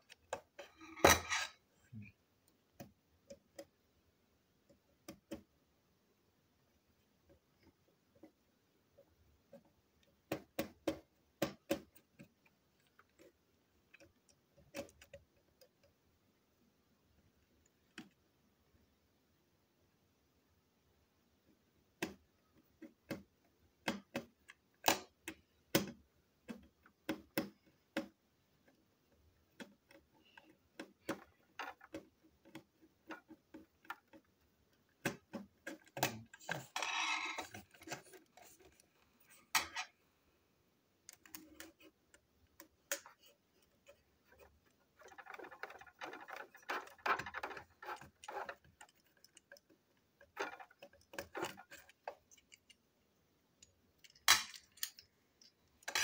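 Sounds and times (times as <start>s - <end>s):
plastic and metal clicks and taps: 22.8s - 28.8s.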